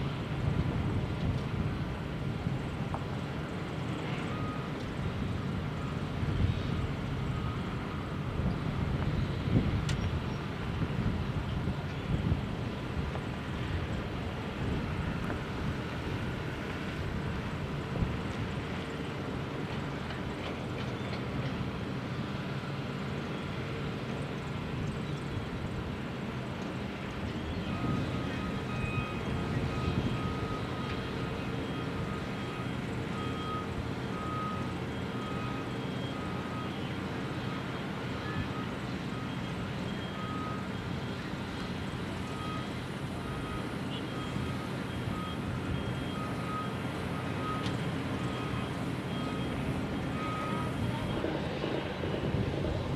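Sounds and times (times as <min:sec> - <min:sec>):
heavy machinery diesel drone: 0:00.0 - 0:52.9
backup alarm beeping: 0:27.6 - 0:41.2, 0:42.2 - 0:52.9.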